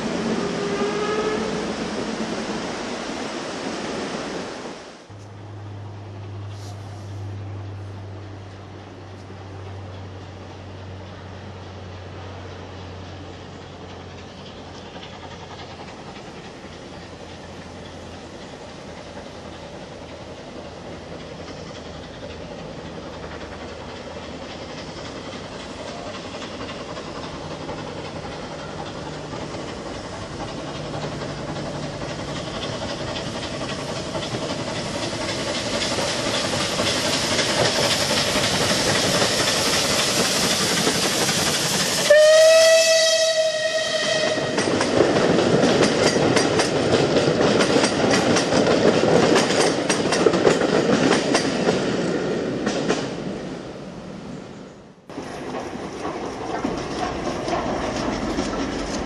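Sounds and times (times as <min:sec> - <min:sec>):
steam locomotive hauling train: 0:00.0 - 0:59.0
steam whistle blast: 0:00.5 - 0:01.7, 0:42.0 - 0:44.6
wheels clicking over rail joints: 0:08.4 - 0:53.4, 0:55.1 - 0:59.0.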